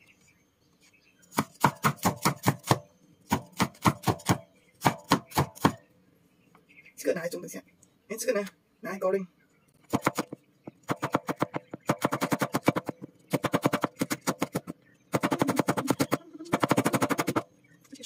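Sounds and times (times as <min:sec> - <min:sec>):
cleaver chopping on a wooden board: 0:01.3 - 0:05.8, 0:09.9 - 0:17.4.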